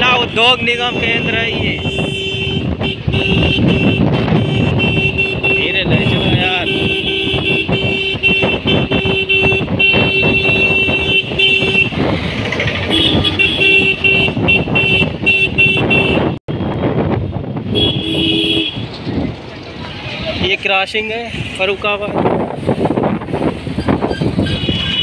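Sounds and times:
vehicle horn honking: 0.8 - 12.0, 12.9 - 16.4, 17.7 - 18.8, 24.4 - 25.0
motorcycle engine: 1.0 - 20.5.

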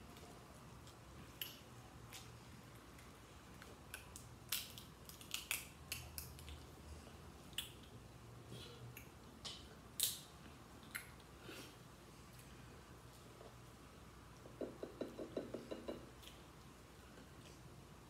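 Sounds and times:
crab shells cracking: 3.9 - 6.6.

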